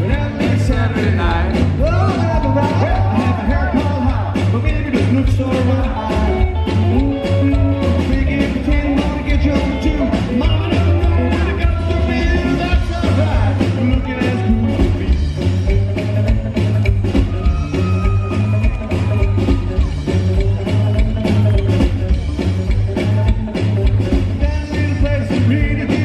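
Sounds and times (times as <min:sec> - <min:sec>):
man singing: 0:00.0 - 0:15.4, 0:24.4 - 0:26.0
drums: 0:00.0 - 0:26.0
electric guitar: 0:00.0 - 0:26.0
upright bass: 0:00.0 - 0:26.0.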